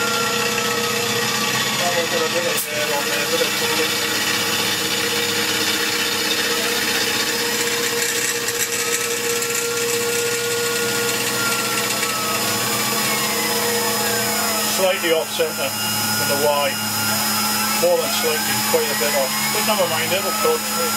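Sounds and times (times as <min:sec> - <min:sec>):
milling machine spindle running: 0:00.0 - 0:20.9.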